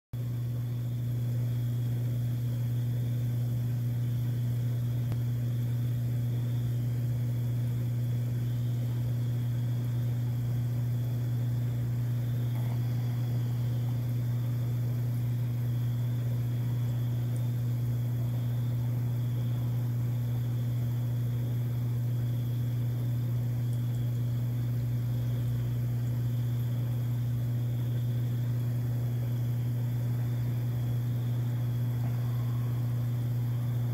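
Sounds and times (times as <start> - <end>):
low hum: 0.2 - 33.9
high-pitched whine: 30.7 - 33.9.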